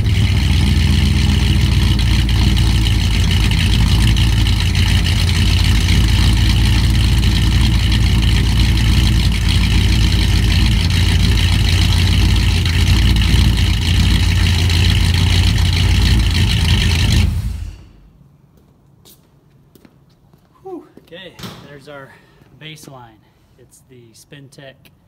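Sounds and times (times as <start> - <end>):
truck engine idling: 0.0 - 18.2.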